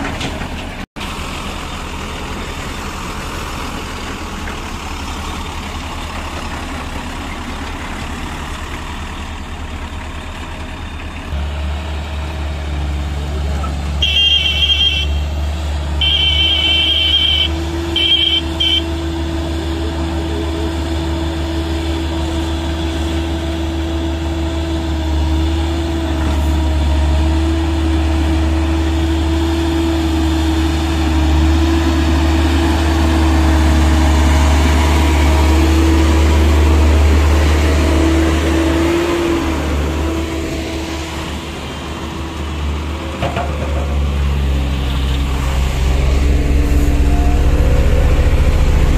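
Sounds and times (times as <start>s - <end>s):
diesel engines droning: 0.0s - 48.9s.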